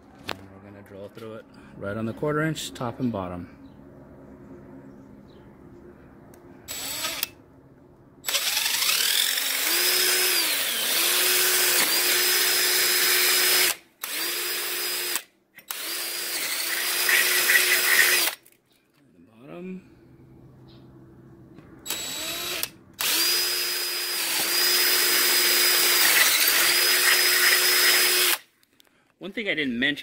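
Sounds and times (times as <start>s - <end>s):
drill trigger pull: 6.7s - 7.3s, 8.3s - 18.4s, 21.9s - 28.5s
cordless drill whining: 6.7s - 7.4s, 8.2s - 18.4s, 21.8s - 28.5s.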